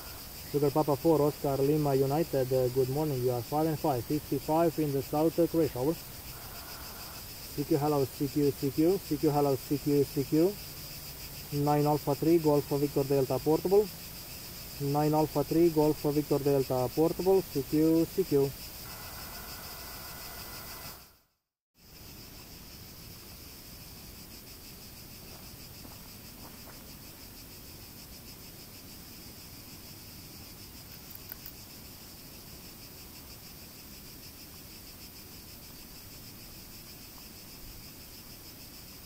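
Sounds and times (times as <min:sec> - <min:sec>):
insects chirping: 0:00.0 - 0:39.0
small clicks: 0:30.9 - 0:31.6.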